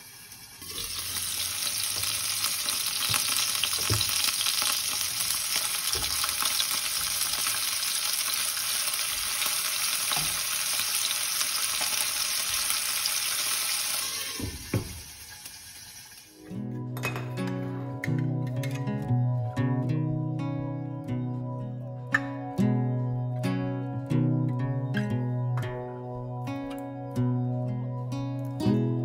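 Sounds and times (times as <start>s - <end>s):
chicken sizzling in oil: 0.0s - 16.5s.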